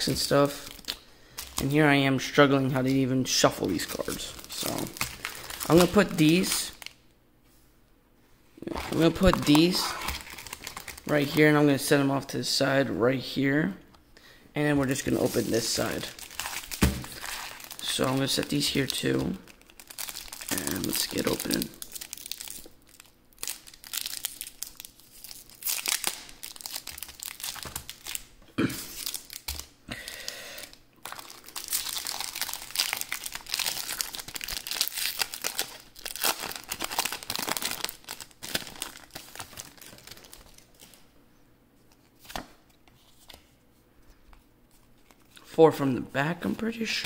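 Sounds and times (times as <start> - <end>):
foil wrapper tearing and crinkling: 3.7 - 7.0, 8.8 - 11.2, 15.8 - 28.3, 28.9 - 29.7, 31.0 - 40.9.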